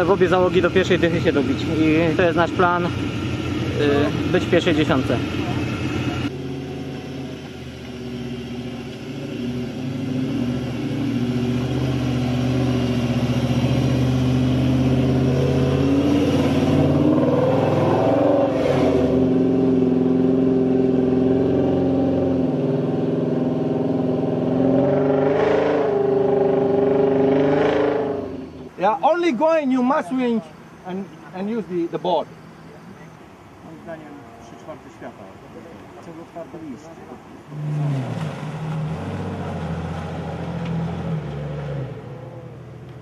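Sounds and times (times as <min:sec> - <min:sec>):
off-road vehicle engine running: 0:00.0 - 0:29.2.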